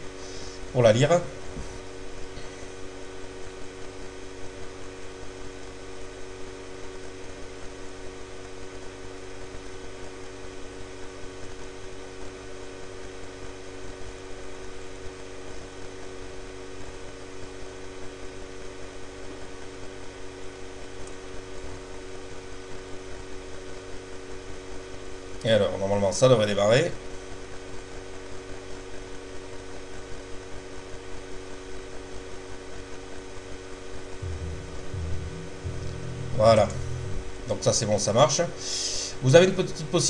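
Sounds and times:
electrical hum: 0.0 - 28.1, 30.7 - 40.0
fixed tones: 34.2 - 37.7
constant hiss: 34.2 - 40.0.

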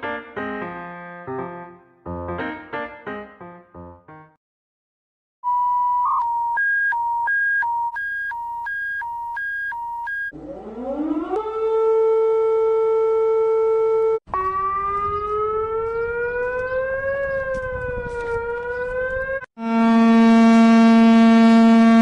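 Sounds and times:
alternating two-tone beep: 5.5 - 10.3
siren winding up: 5.5 - 19.4
siren rising and dipping: 5.5 - 19.5.

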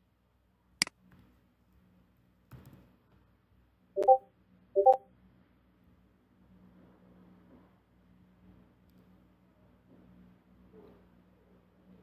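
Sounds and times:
notification chimes: 4.0 - 5.0.

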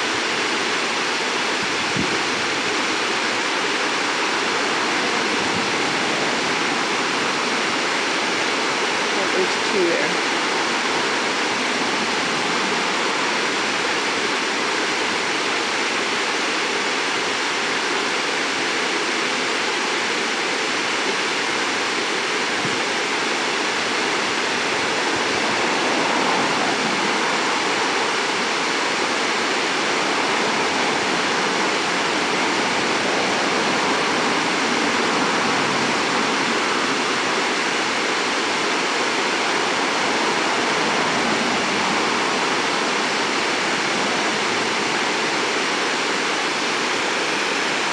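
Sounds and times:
creek water rushing over rocks: 0.0 - 47.9.

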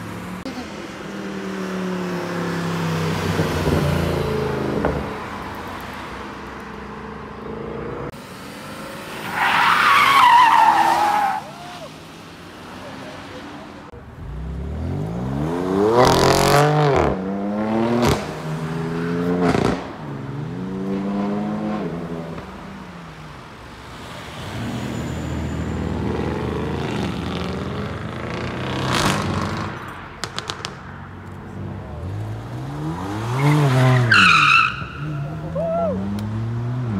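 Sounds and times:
cars accelerating hard: 6.9 - 22.7, 23.9 - 30.8, 31.4 - 36.9
exhaust bangs and crackles: 27.0 - 31.0.

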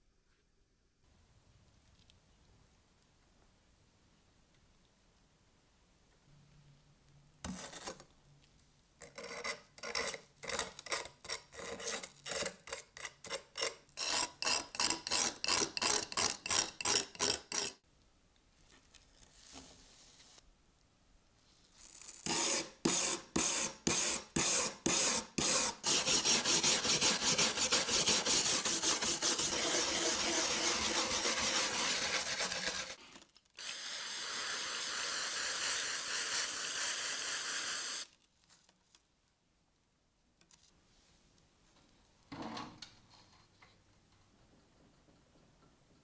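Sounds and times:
wire brush scrubbing metal: 24.9 - 33.0.

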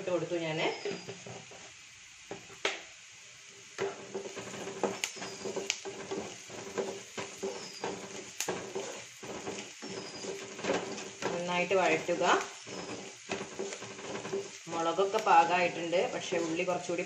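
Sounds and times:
light sizzle: 0.0 - 17.0
spatula scraping a frying pan: 0.7 - 1.8, 3.6 - 17.0.

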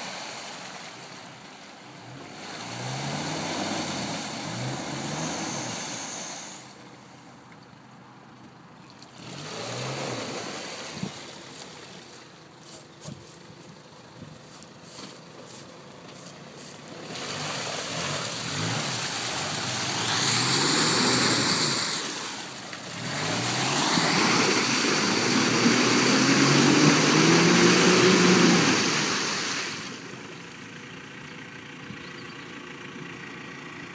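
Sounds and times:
wheels splashing in muddy water: 0.0 - 33.9
car engine revving: 2.0 - 6.8, 9.2 - 11.1, 16.9 - 30.1.

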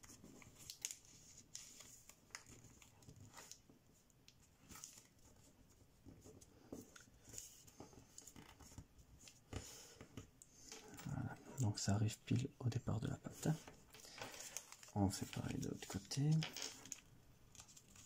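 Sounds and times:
small paper crackles: 0.0 - 3.7, 13.4 - 18.0
paper rustling and crinkling: 0.0 - 10.0, 13.3 - 18.0.

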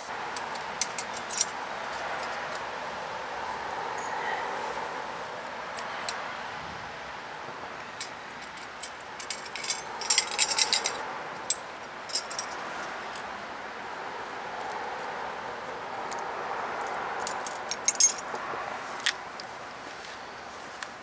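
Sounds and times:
steady background hum: 0.0 - 19.9
metal tools clinking and rattling: 0.4 - 2.5, 8.0 - 12.6, 17.2 - 18.3.

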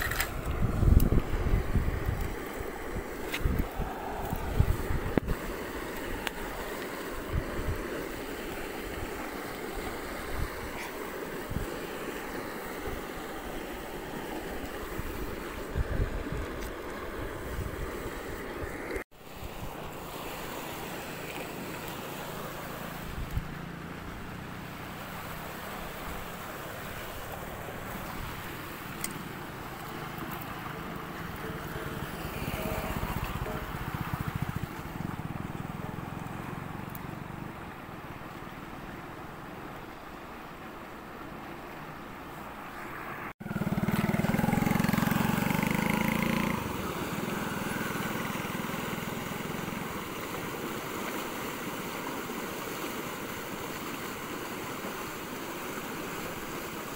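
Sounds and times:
wind buffeting microphone: 0.0 - 5.6, 14.8 - 18.4
flowing river water: 0.0 - 56.9.

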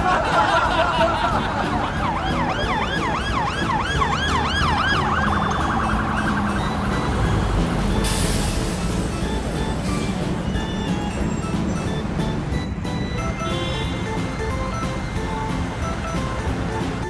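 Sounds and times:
low traffic rumble: 0.0 - 17.0
emergency vehicle siren: 0.9 - 16.8
hiss: 8.0 - 9.3.

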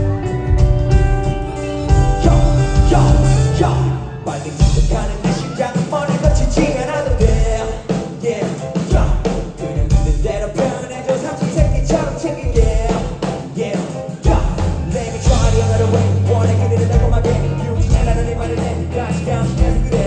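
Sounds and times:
bass guitar: 0.0 - 7.7, 14.2 - 20.0
drum kit beat: 0.0 - 20.0
electric guitar: 0.0 - 20.0
lead vocals singing: 1.9 - 20.0.

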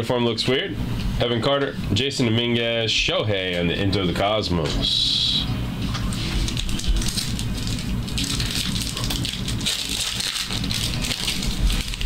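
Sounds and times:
low steady hum: 0.0 - 12.0
foil wrappers crinkling: 5.9 - 12.0.

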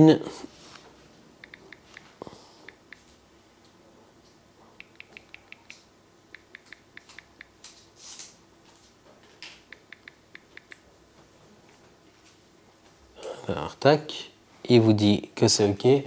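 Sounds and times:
phone keypad ticks: 1.4 - 2.1, 4.8 - 5.8, 6.4 - 7.6, 9.7 - 10.8.

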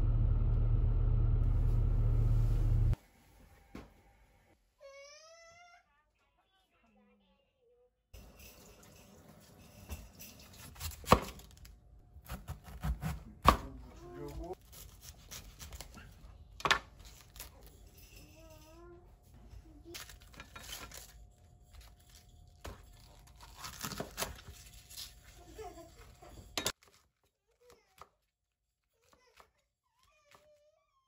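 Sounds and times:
cabbage leaves tearing: 14.4 - 16.2, 21.8 - 25.9.

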